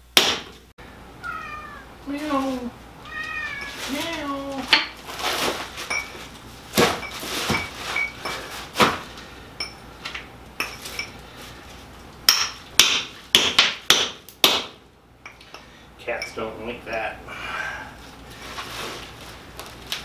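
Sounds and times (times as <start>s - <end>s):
hammer striking chisel on rock: 12.3s - 14.8s.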